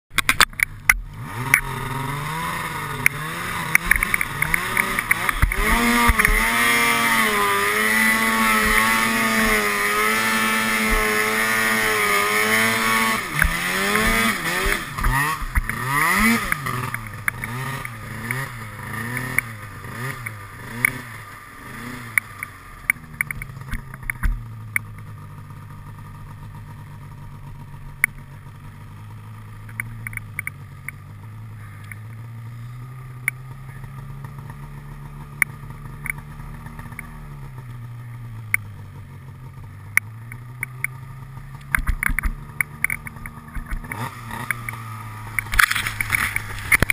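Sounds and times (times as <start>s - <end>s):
clicks: 0.1s - 1.7s, 3.0s - 6.4s, 22.1s - 25.0s, 29.6s - 31.0s, 36.8s - 37.1s, 41.6s - 46.9s
snowmobile engine idling: 0.2s - 46.9s
snowmobile engine revving: 0.3s - 46.9s.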